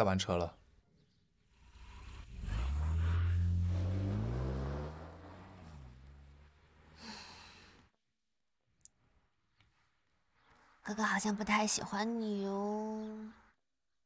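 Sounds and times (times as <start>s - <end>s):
car engine pulling away: 1.5s - 7.8s.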